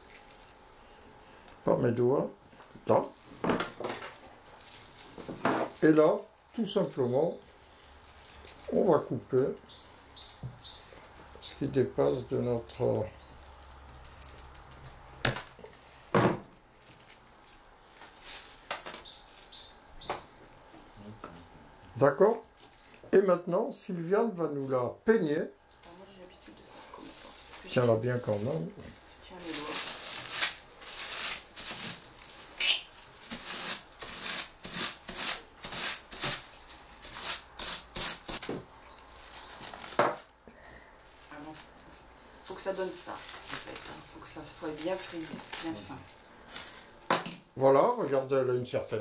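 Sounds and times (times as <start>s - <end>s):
bird chirping: 0.0s - 0.5s, 9.4s - 12.2s, 17.2s - 17.8s, 18.7s - 20.7s
scratchy combing of raffia: 25.9s - 38.4s.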